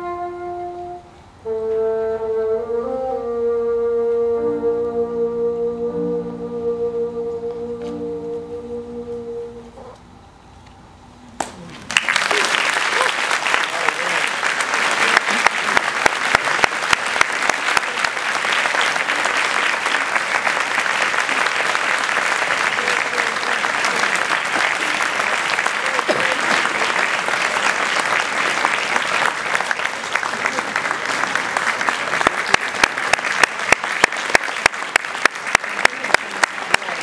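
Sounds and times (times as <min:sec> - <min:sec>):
audience applauding: 0:11.4 - 0:37.0
nearby hands clapping loudly: 0:11.4 - 0:37.0.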